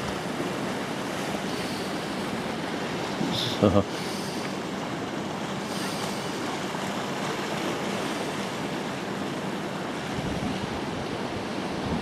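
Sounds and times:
sea washing on rocky shore: 0:00.0 - 0:12.0
wind on microphone: 0:10.1 - 0:12.0.

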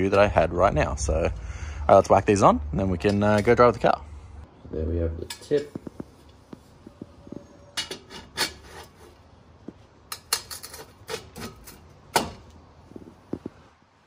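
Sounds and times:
metal clinking and scraping: 0:06.9 - 0:09.2, 0:10.1 - 0:12.5.

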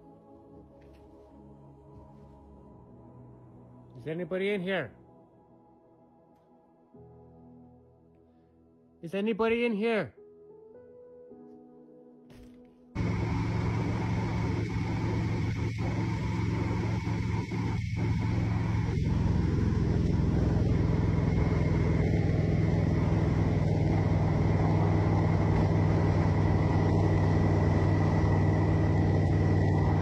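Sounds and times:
car engine and road noise: 0:13.0 - 0:30.0.

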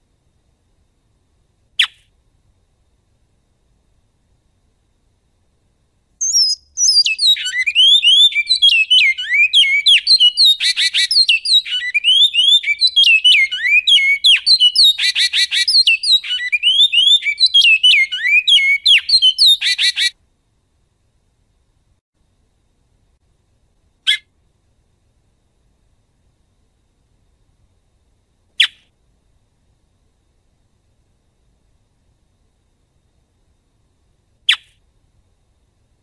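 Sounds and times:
finch singing: 0:06.2 - 0:20.1.

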